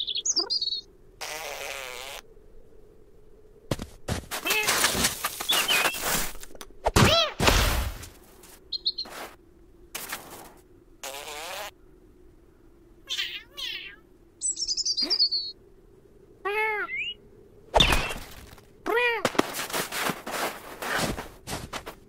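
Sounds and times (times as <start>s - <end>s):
small bird chirping: 0.0s - 0.9s, 5.4s - 6.2s, 8.7s - 9.2s, 13.1s - 15.6s, 16.6s - 17.2s
short scuffling noises: 3.7s - 6.6s, 7.7s - 10.6s, 18.0s - 22.0s
wavering cat-like call: 13.0s - 14.1s, 16.4s - 17.2s.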